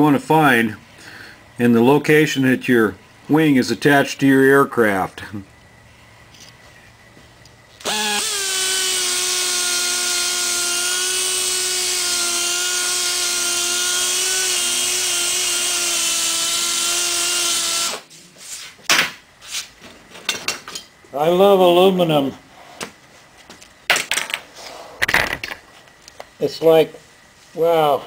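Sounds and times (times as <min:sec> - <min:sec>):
air grinder whining: 0:07.8 - 0:18.1.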